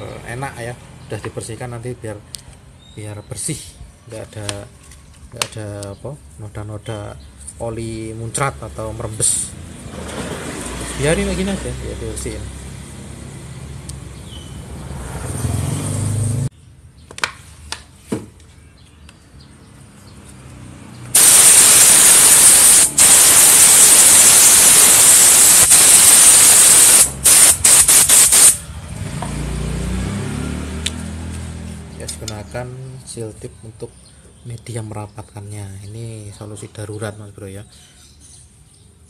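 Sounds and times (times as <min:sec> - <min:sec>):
air blow gun hissing: 0:21.1 - 0:28.6.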